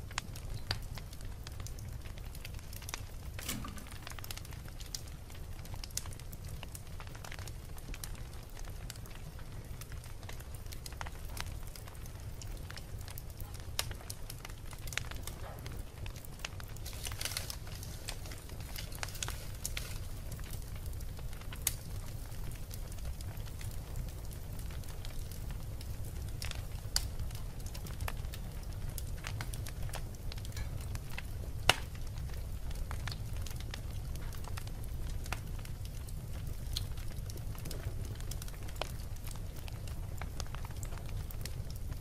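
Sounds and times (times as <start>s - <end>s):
fire burning: 0.0s - 42.0s
fire crackling and popping: 0.0s - 42.0s.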